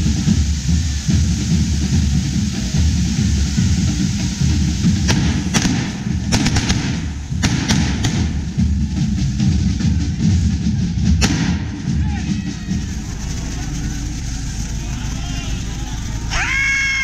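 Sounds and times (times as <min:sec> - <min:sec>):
firework fountains hissing: 0:00.0 - 0:17.0
sharp firework cracks: 0:04.2 - 0:08.7, 0:11.2 - 0:12.0.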